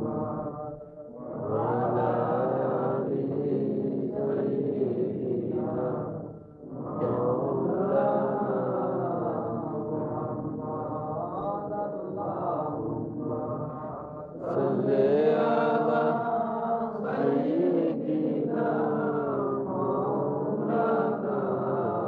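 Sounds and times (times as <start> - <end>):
voices chanting slow devotional chant: 0.0 - 22.0.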